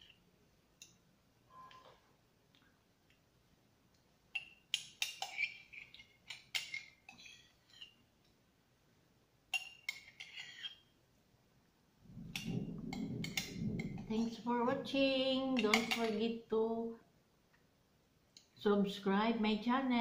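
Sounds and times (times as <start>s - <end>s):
metal spoon clinking on mug: 9.5s - 10.8s.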